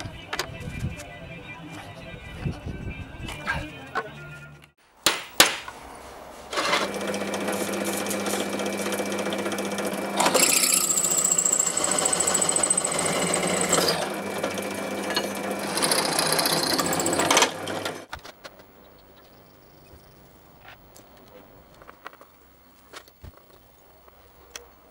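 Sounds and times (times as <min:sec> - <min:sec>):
drill press motor humming: 0:06.6 - 0:18.0
drill bit whining into metal: 0:08.4 - 0:18.0.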